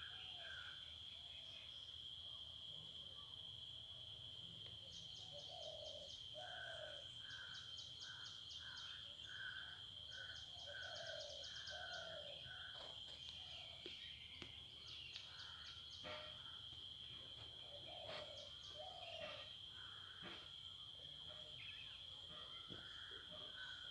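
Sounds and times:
crickets trilling: 0:00.0 - 0:23.9
animal calls and ticks: 0:11.0 - 0:16.2.

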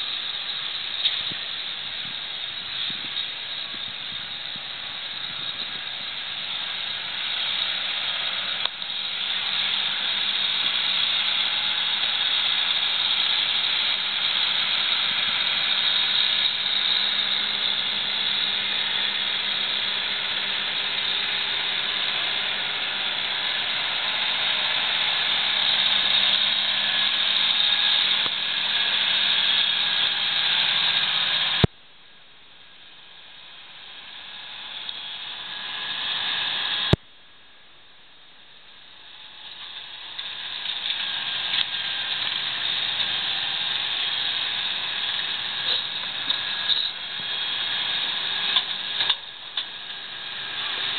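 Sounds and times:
distant tractor engine hum: 0:00.0 - 0:50.9
loud even hiss: 0:33.0 - 0:37.0.

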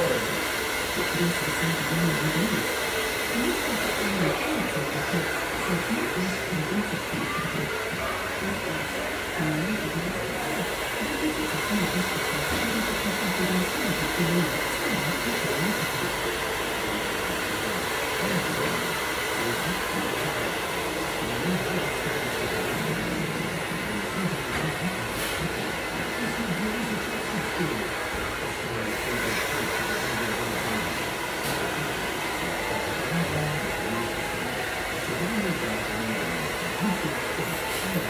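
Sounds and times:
hair dryer running: 0:00.0 - 0:38.0.

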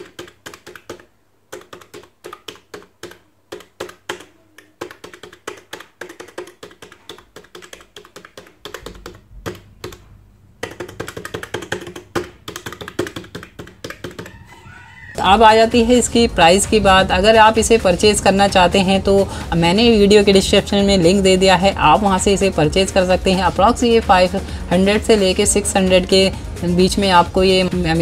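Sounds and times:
keypad keys clicking: 0:00.0 - 0:14.4.

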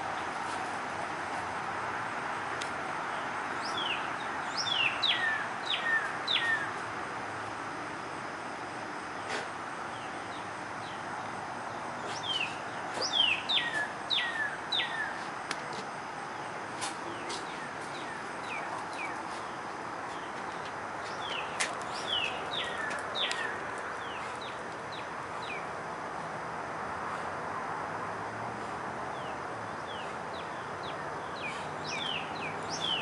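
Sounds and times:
bird singing down-slurred whistles: 0:03.6 - 0:06.7, 0:12.1 - 0:15.2, 0:29.9 - 0:33.0.

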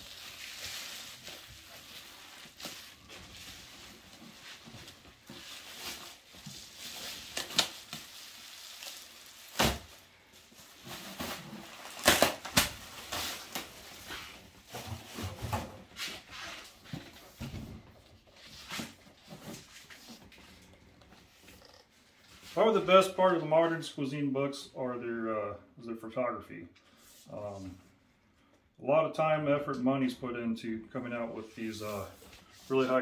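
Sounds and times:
plastic wrapping crinkling: 0:00.0 - 0:14.8.

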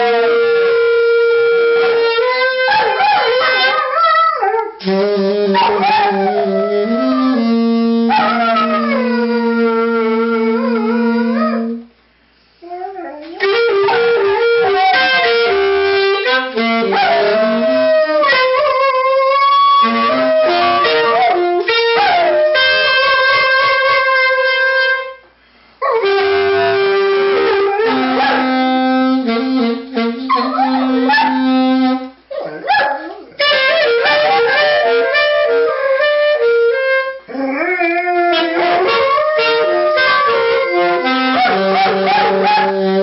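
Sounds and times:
saxophone slow melody: 0:00.0 - 0:03.8, 0:04.8 - 0:12.0, 0:12.6 - 0:32.4, 0:33.2 - 0:43.0
dog howling: 0:12.6 - 0:14.0, 0:30.3 - 0:31.5, 0:32.3 - 0:36.2, 0:37.3 - 0:42.8.

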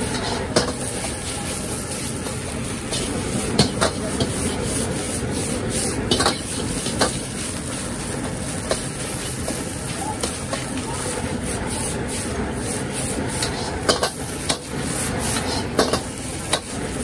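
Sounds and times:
ladle clanking on wok: 0:00.0 - 0:01.4, 0:02.2 - 0:04.8, 0:05.8 - 0:07.3, 0:13.1 - 0:17.0
gas burner roaring: 0:00.0 - 0:17.0
ladle scraping wok: 0:00.0 - 0:17.0.

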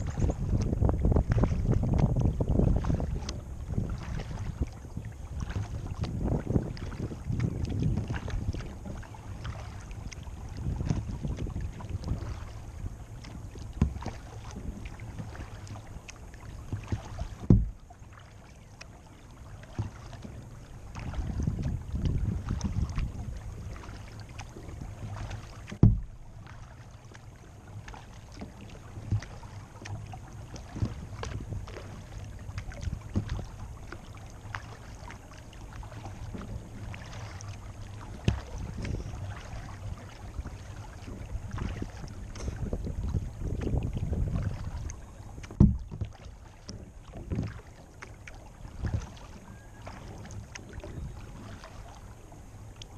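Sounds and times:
steady low rumble: 0:00.0 - 0:49.0
paddle splashes and drips: 0:00.0 - 0:52.9
knocks on plastic hull: 0:16.7 - 0:17.8, 0:25.7 - 0:26.2, 0:33.1 - 0:33.5, 0:45.4 - 0:47.6.

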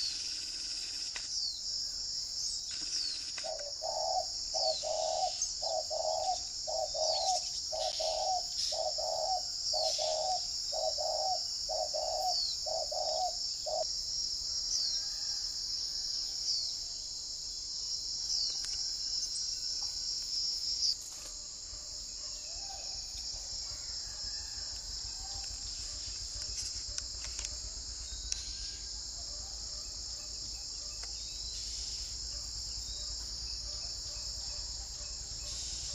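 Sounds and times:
high-pitched insect drone: 0:00.0 - 0:21.0, 0:22.5 - 0:29.1
bird hooting: 0:03.4 - 0:13.8.

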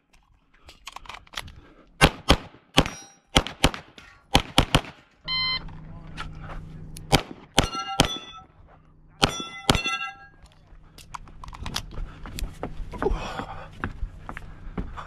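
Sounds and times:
pistol shots: 0:02.0 - 0:05.0, 0:07.1 - 0:08.4, 0:09.2 - 0:10.2
steel target ringing: 0:07.5 - 0:08.6, 0:09.2 - 0:10.4.

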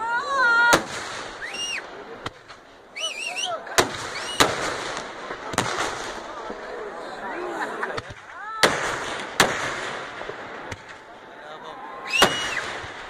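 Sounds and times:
people shouting: 0:03.0 - 0:04.5, 0:11.6 - 0:13.0.

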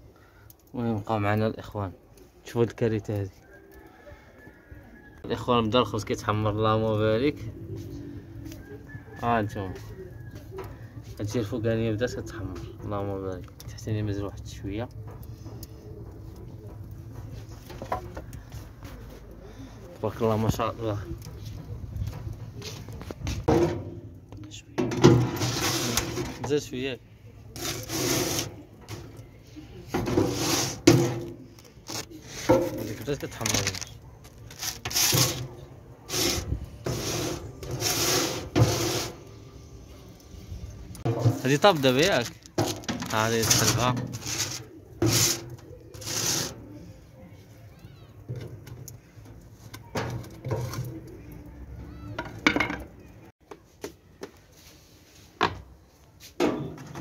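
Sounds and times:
metal peel knocking and scraping: 0:14.9 - 0:18.5, 0:20.4 - 0:26.7, 0:27.6 - 0:29.2, 0:29.8 - 0:39.3, 0:41.0 - 0:46.6, 0:48.3 - 0:51.2, 0:52.2 - 0:53.0, 0:56.4 - 0:57.0
spatula scraping steel plate: 0:25.0 - 0:26.5, 0:27.6 - 0:28.6, 0:29.9 - 0:33.0, 0:34.6 - 0:39.3, 0:43.1 - 0:46.6.

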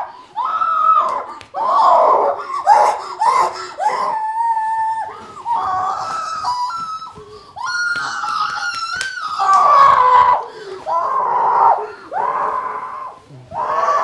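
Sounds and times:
women laughing and squealing: 0:01.6 - 0:12.6.

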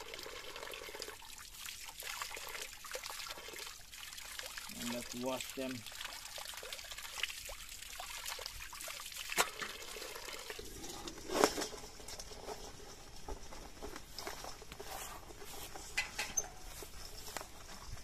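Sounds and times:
water splashing onto stones: 0:01.0 - 0:12.1.

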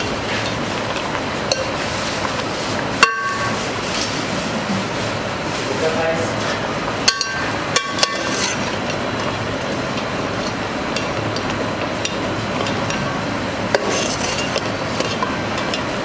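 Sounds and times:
kitchen background din: 0:00.0 - 0:16.0
utensils knocking and clinking: 0:07.0 - 0:09.4.

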